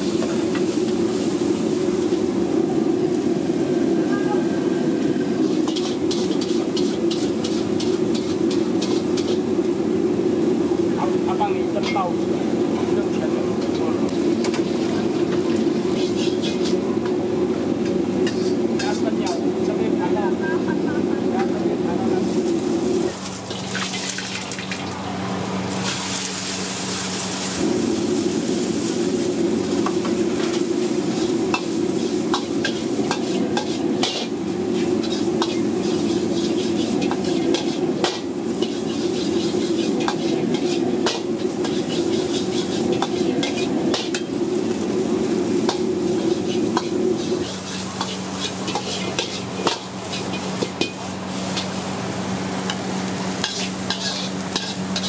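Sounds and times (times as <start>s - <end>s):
gas burner rushing: 0.0s - 19.8s, 21.5s - 55.0s
frying sizzle: 0.0s - 55.0s
metal ladle scraping a wok: 5.4s - 9.6s, 13.6s - 16.8s, 18.2s - 19.4s, 30.4s - 51.8s, 52.7s - 55.0s.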